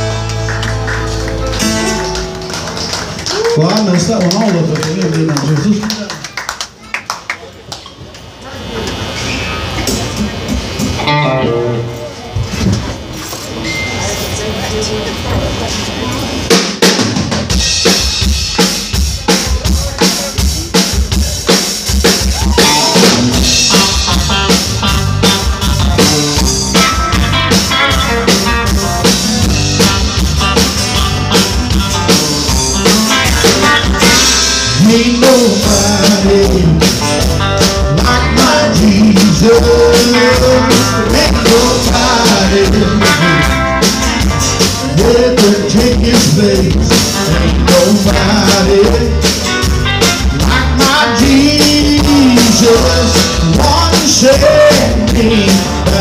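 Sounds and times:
live country band playing: 0.0s - 7.1s, 8.7s - 56.0s
drum-kit beat: 16.5s - 56.0s.

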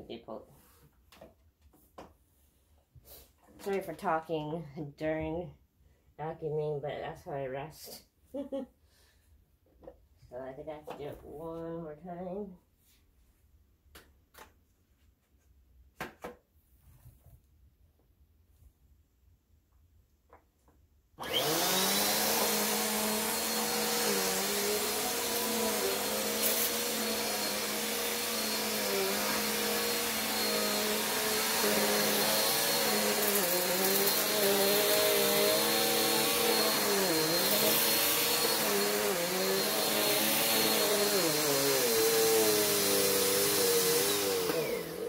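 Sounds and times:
vacuum cleaner motor whine: 21.2s - 45.0s.

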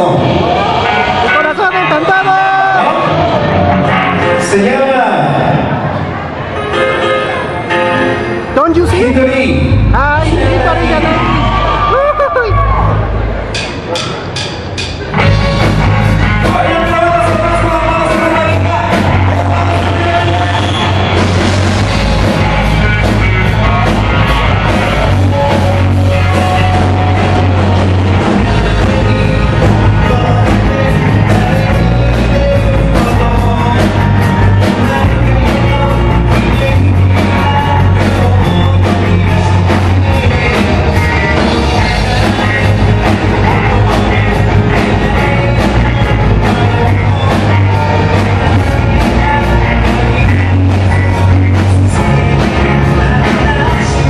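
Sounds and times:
live rock band playing loudly: 0.0s - 54.0s
lead singer singing: 15.2s - 54.0s.

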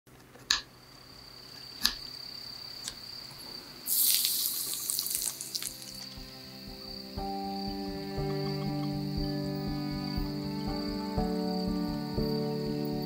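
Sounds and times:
wok sizzling and crackling: 3.8s - 7.1s.

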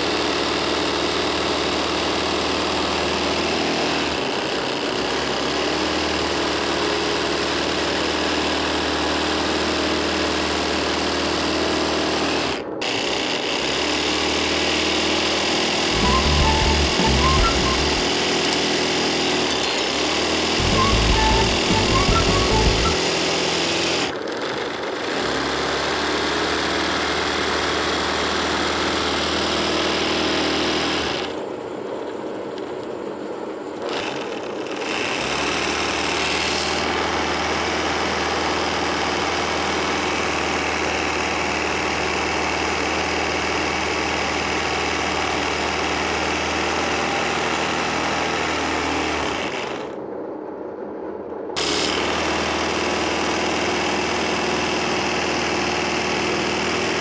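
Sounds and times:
sewing machine running: 12.8s - 26.1s.

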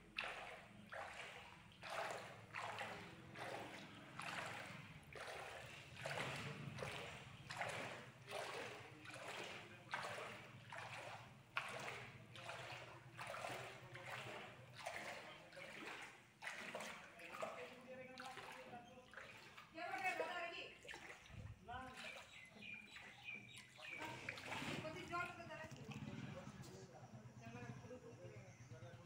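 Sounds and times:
footsteps wading through water: 0.0s - 26.7s.

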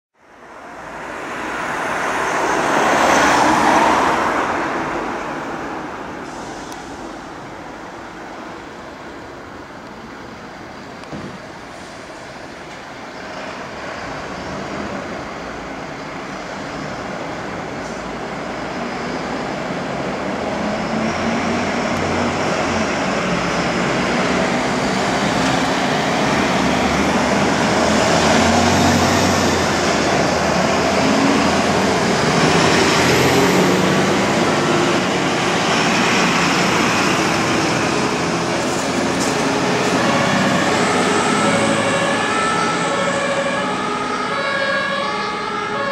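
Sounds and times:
trucks driving past: 0.2s - 45.9s
siren: 39.7s - 45.9s.

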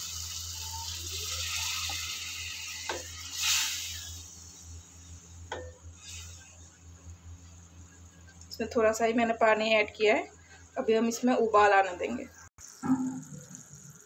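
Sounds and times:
water hissing in a hot pan: 0.0s - 5.2s, 6.0s - 6.5s, 12.6s - 14.0s.

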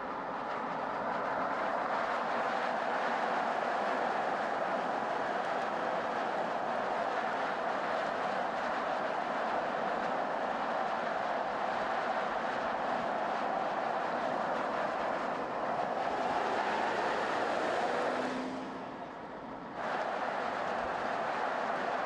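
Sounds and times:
rushing wind: 0.0s - 22.0s
tyre roar on asphalt: 0.0s - 22.0s.

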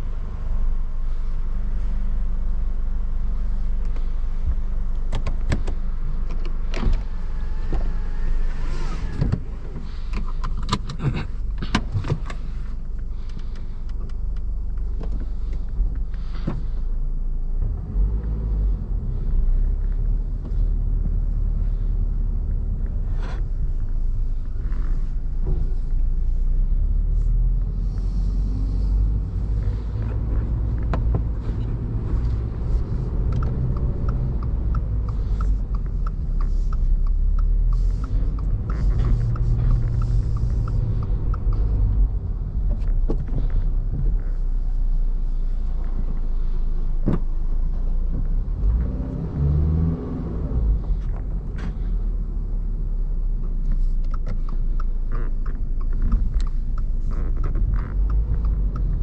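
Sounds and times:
car engine rumble in cabin: 0.0s - 59.0s
sharp clicks and knocks: 4.9s - 7.1s, 29.5s - 44.2s, 53.4s - 59.0s.

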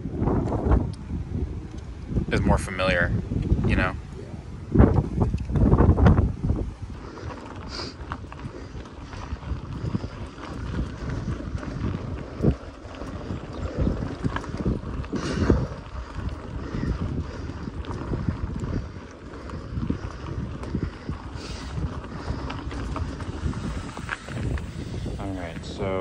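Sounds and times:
bicycle tyres on dirt trail: 0.0s - 26.0s
wind buffeting microphone: 0.0s - 26.0s.

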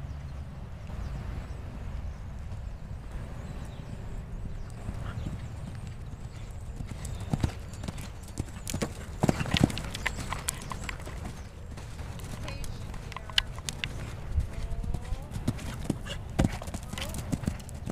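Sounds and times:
horse hoofbeats on sand: 4.7s - 17.9s.

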